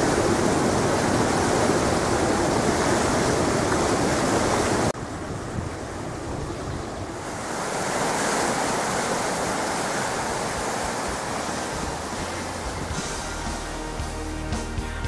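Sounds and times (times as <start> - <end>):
floodwater rushing: 0.0 - 14.4.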